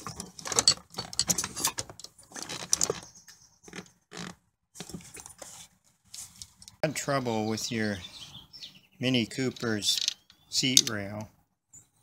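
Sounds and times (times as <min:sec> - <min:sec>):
metal seat rail rattling: 0:00.0 - 0:03.1.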